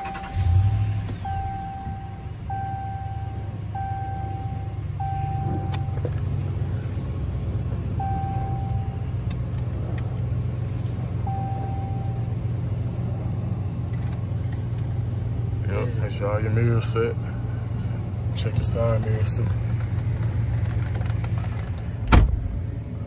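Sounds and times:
dashboard warning chime beeps: 0.0s - 6.1s, 8.0s - 9.2s, 11.2s - 12.4s
truck engine idling: 0.0s - 23.0s.

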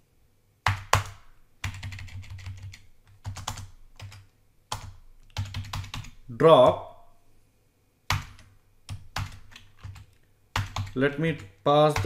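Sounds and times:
typing on keyboard: 0.6s - 6.2s, 8.1s - 12.0s.

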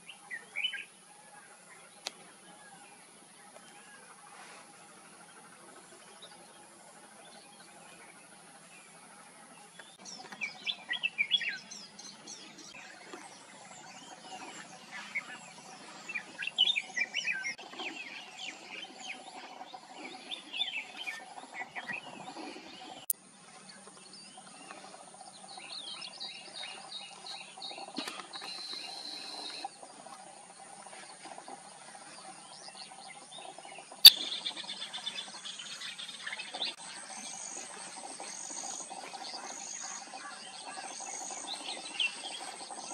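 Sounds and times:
birds singing whistled phrases: 0.0s - 0.9s, 10.0s - 12.2s, 34.0s - 36.7s.

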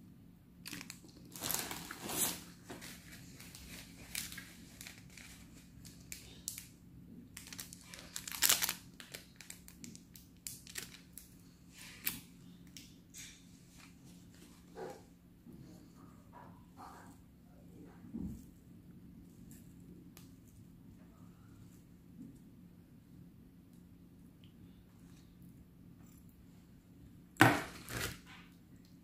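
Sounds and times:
paper sachets tearing and crinkling: 0.6s - 6.7s, 7.4s - 12.3s, 27.4s - 28.3s.

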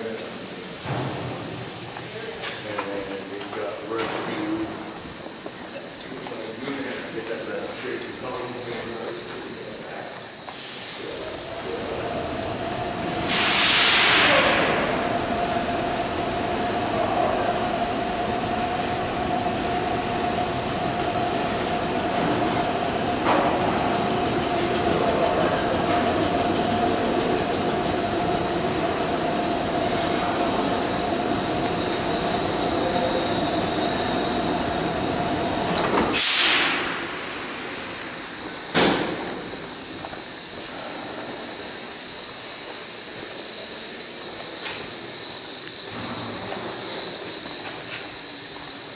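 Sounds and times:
train noise with steady tone: 0.0s - 48.9s
air hissing bursts: 7.7s - 43.0s.

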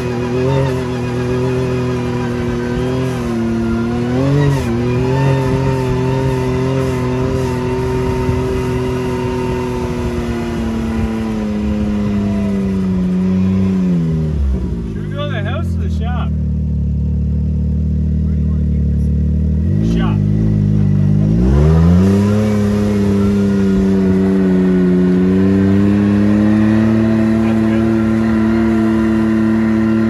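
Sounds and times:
vehicle engine running: 0.0s - 30.0s.

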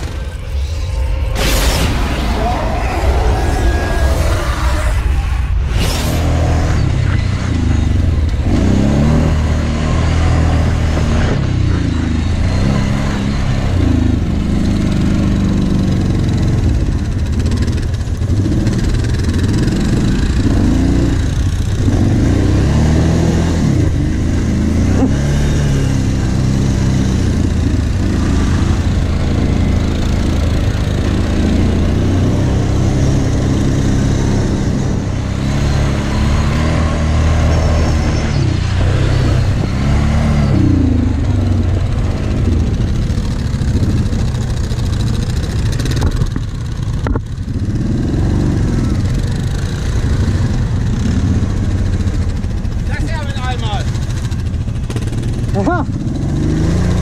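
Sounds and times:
atv engine revving: 6.2s - 57.0s.

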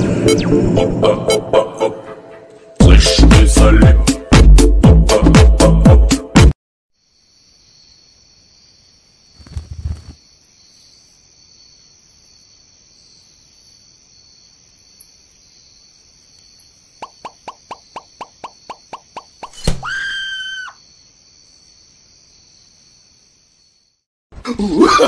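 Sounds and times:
crickets trilling: 7.0s - 24.0s.

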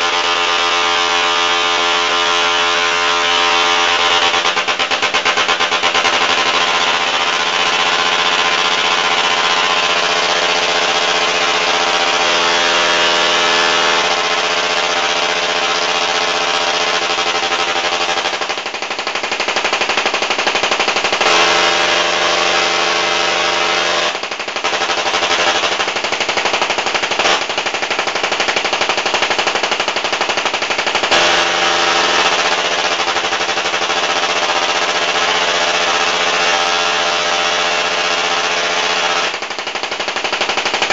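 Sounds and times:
tesla coil sparks buzzing: 21.2s - 24.2s, 30.9s - 32.9s.

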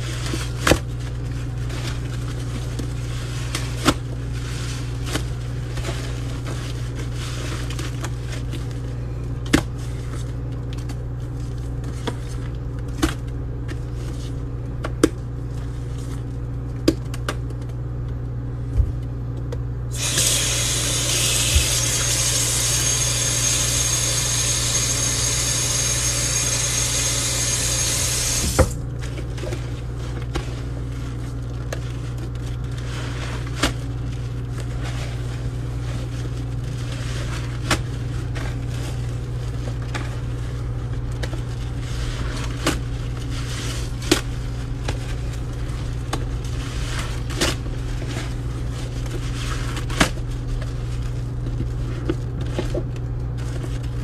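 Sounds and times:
tap water running into sink: 20.0s - 25.8s.

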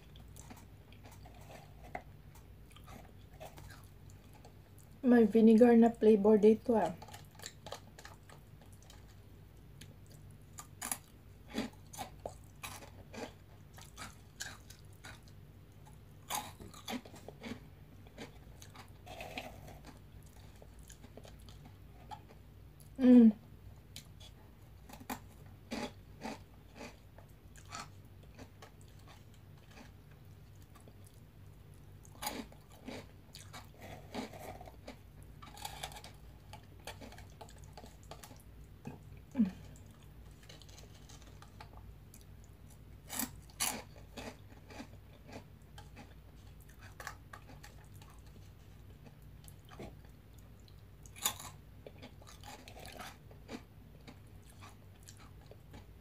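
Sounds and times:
crunchy snack chewing: 0.0s - 4.9s, 7.0s - 9.2s, 9.8s - 22.4s, 24.0s - 31.2s, 32.0s - 56.0s.

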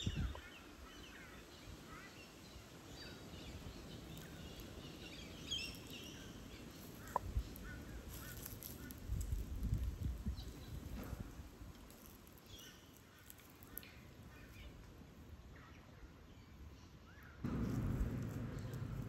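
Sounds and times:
birds chirping and calling: 0.0s - 11.2s
low thumps: 17.4s - 19.0s.

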